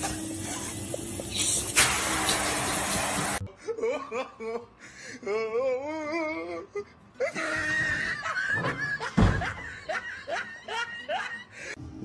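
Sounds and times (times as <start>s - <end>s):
person laughing: 3.4s - 4.7s.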